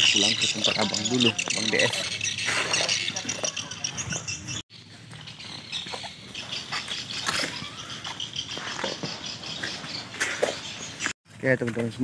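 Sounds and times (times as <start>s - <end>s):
faint bird chirping: 0.0s - 11.2s.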